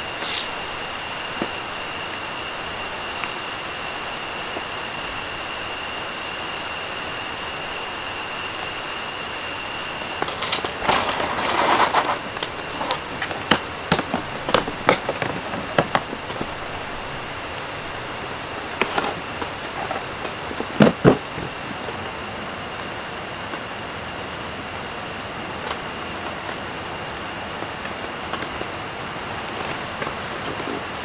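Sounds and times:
plastic case rustling: 0.2 - 0.6, 10.2 - 16.8.

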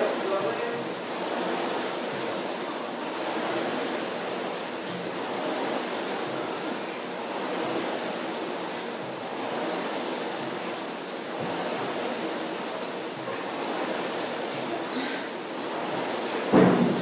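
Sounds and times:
rowing machine fan rushing: 0.0 - 17.0.

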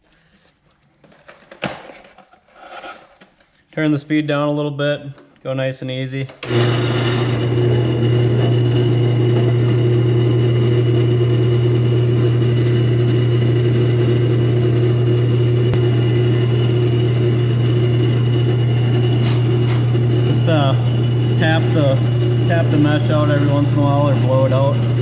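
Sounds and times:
wood lathe motor humming: 6.4 - 25.0
sanding spinning wood: 6.5 - 25.0.

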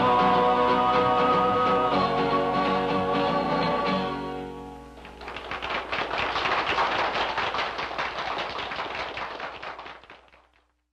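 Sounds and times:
person singing with guitar: 0.0 - 4.4
audience applause: 5.0 - 10.7.

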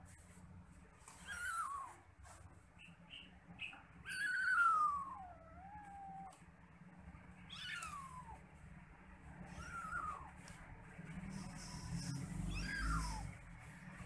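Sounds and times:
kittens mewing: 1.0 - 2.4, 3.9 - 6.6, 7.4 - 8.6, 9.2 - 10.6, 11.3 - 14.0.

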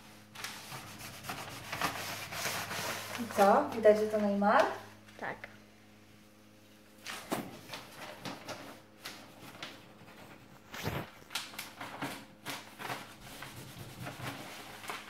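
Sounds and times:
cloth rubbing on wall: 0.0 - 3.7, 12.6 - 15.0
plastic sheet rustling and crinkling: 0.0 - 4.6, 6.9 - 15.0.

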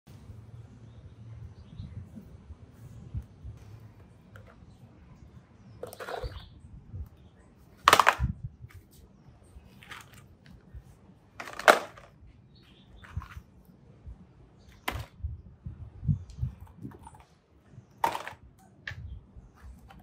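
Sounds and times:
plastic toys clattering into basket: 7.8 - 8.3, 11.4 - 12.2, 14.8 - 15.2, 18.0 - 18.5.

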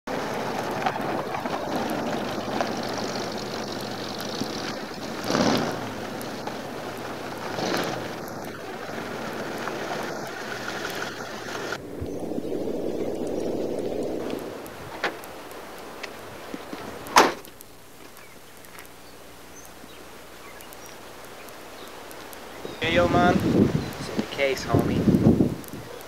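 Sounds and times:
car engine and tyres: 0.1 - 11.9
wind noise on microphone: 7.2 - 15.1, 22.6 - 26.0.

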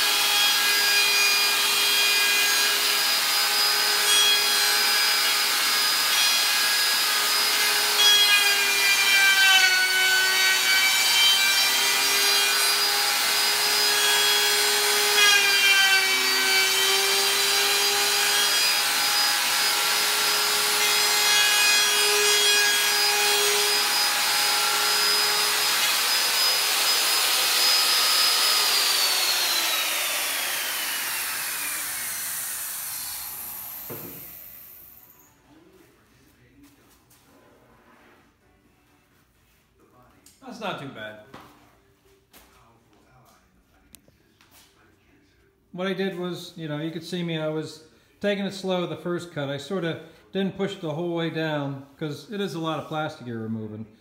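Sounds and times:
router whining cutting plastic: 0.0 - 35.2
router motor spinning down: 23.0 - 35.2.

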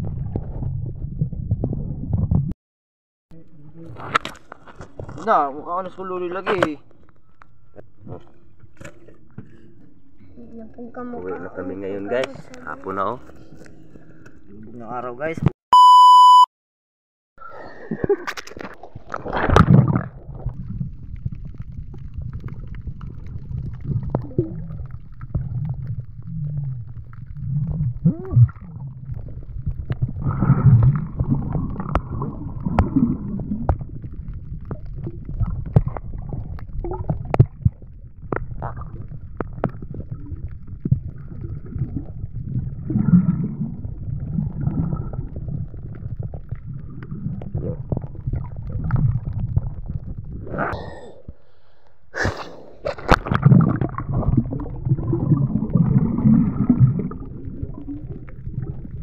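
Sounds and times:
muffled underwater rumble: 0.0 - 2.5, 17.4 - 51.8, 52.5 - 59.0
water sloshing against camera: 18.0 - 59.0.

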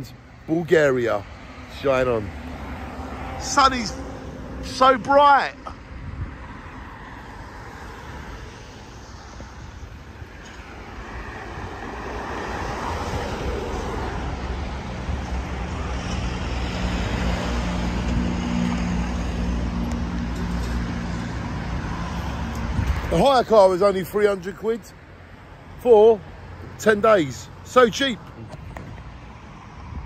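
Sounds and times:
road traffic noise: 0.0 - 30.0.

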